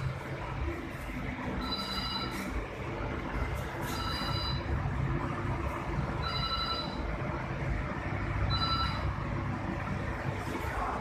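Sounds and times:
oven burner and fans rumbling: 0:00.0 - 0:11.0
high buzzer beeps: 0:01.6 - 0:02.6, 0:03.8 - 0:04.7, 0:06.2 - 0:07.1, 0:08.5 - 0:09.1.

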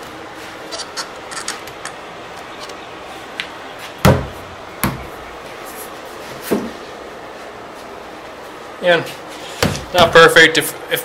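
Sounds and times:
heavy thumps on hardboard sheet: 0:09.6 - 0:10.2.

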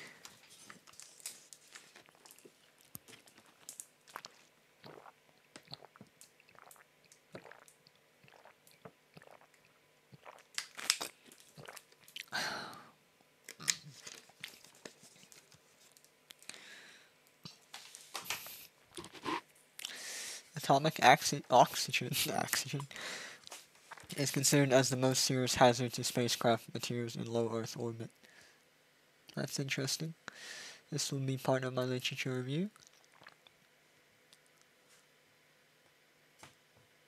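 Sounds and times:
small clicks and crunches: 0:00.2 - 0:04.5, 0:10.5 - 0:12.2.

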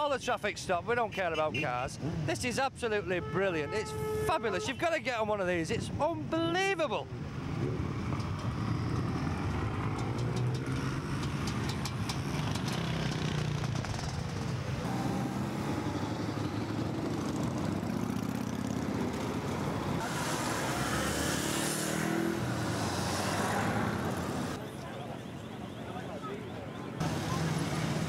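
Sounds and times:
motorcycles riding past: 0:07.3 - 0:24.7.

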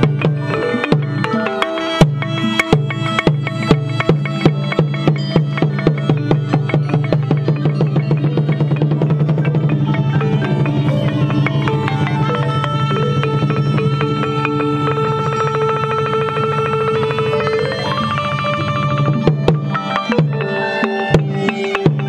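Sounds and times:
drum strokes: 0:00.0 - 0:22.0
pitched percussion melody: 0:00.0 - 0:22.0
wind instrument melody: 0:00.0 - 0:22.0
held low tone: 0:07.3 - 0:20.7.

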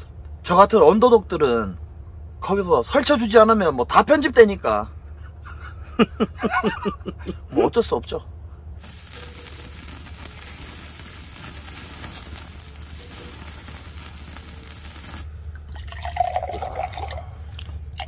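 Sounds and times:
beef sizzling on a grill: 0:08.8 - 0:15.3
liquid glugging from glass bottle: 0:15.7 - 0:18.0.

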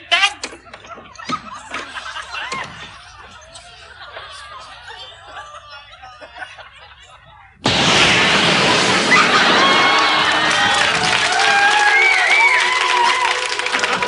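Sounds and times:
people giggling: 0:00.6 - 0:07.6
people cheering and shrieking: 0:07.9 - 0:14.0.

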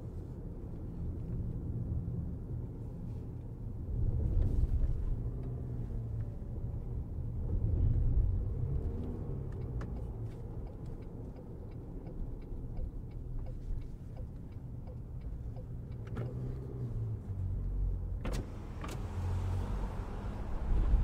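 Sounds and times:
car road and engine rumble: 0:00.0 - 0:21.0
turn signal ticking: 0:08.4 - 0:18.0.

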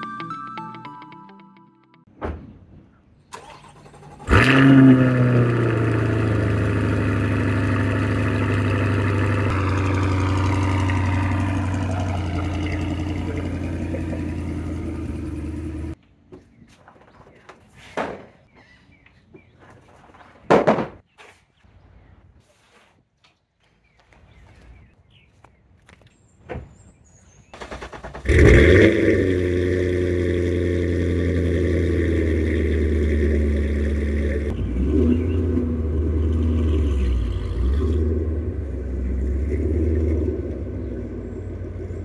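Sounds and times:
car engine starting and idling: 0:03.3 - 0:16.0, 0:27.6 - 0:42.0
wooden ramps knocking on floor: 0:20.3 - 0:21.0.

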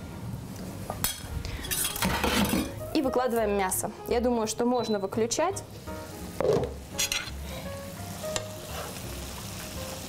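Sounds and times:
meat sizzling in a frying pan: 0:05.7 - 0:10.0.

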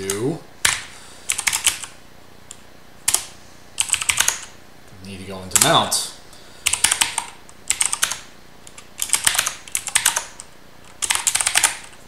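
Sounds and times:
mechanical keyboard typing: 0:00.0 - 0:01.9, 0:03.1 - 0:04.5, 0:06.7 - 0:12.0.

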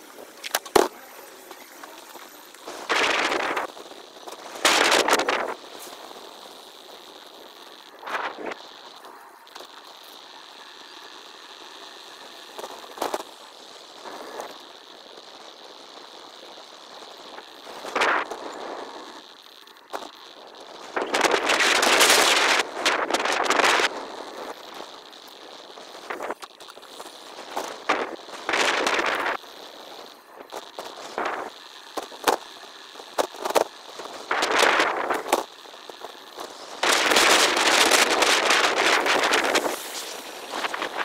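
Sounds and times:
crackly bursts: 0:00.0 - 0:41.0
sped-up bicycle riding noise: 0:00.0 - 0:41.0.

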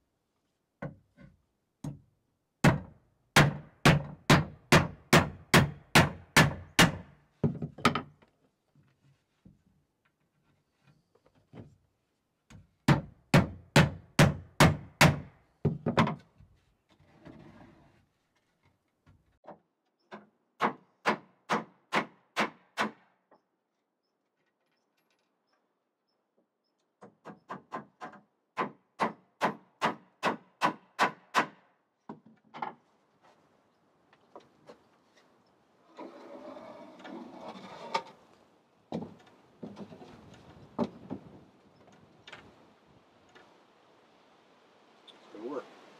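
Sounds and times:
hammer driving nails into wood: 0:02.6 - 0:07.1, 0:12.9 - 0:16.2, 0:20.6 - 0:23.1, 0:27.0 - 0:31.7.

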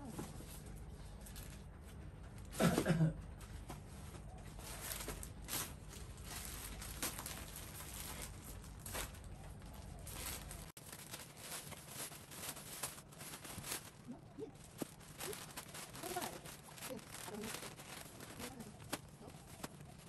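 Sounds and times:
plastic bags crinkling: 0:04.4 - 0:20.0.

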